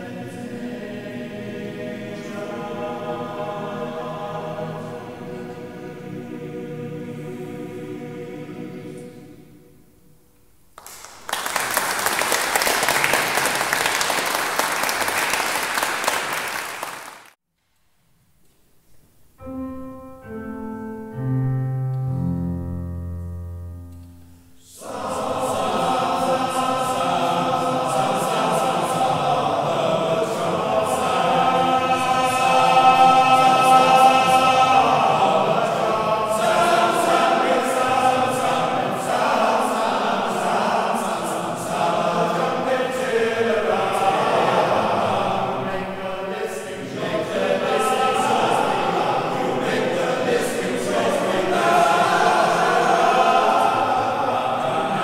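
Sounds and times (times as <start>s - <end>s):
male choir singing: 0.0s - 9.7s, 24.6s - 55.0s
audience applauding: 10.8s - 17.4s
piano notes: 19.4s - 27.2s.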